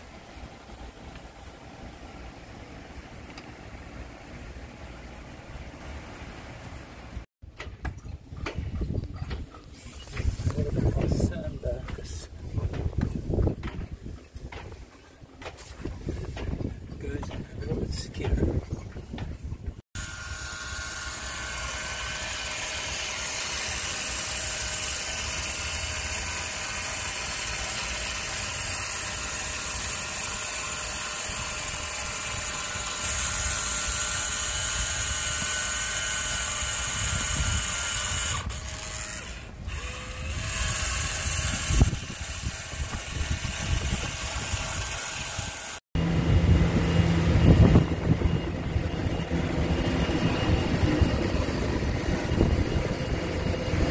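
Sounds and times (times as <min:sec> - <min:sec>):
power tool motor whining: 0:20.0 - 0:45.8
machine humming: 0:20.0 - 0:53.9.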